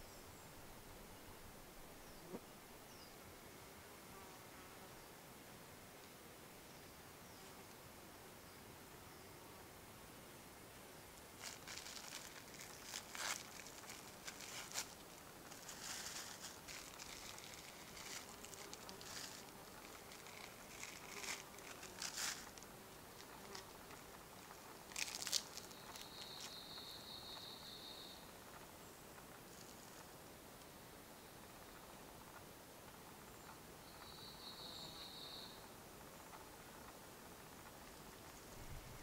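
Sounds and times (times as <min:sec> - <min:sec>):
sharp crackle: 0:11.1 - 0:30.2
rustling and crinkling: 0:11.2 - 0:26.6, 0:28.5 - 0:30.2.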